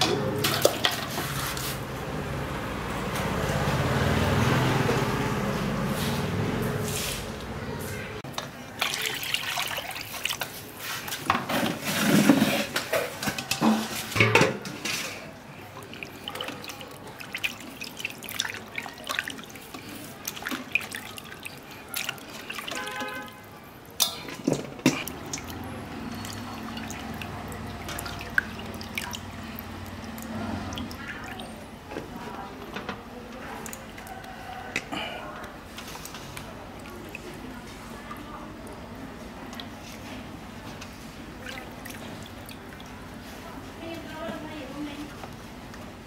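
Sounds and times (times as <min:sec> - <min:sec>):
water splashing in metal basin: 0:00.0 - 0:01.9, 0:08.3 - 0:45.1
water dripping: 0:08.3 - 0:10.8, 0:15.5 - 0:32.0, 0:33.3 - 0:39.8, 0:40.8 - 0:43.5
wet squishing: 0:08.7 - 0:12.9, 0:15.0 - 0:32.5, 0:33.3 - 0:43.6.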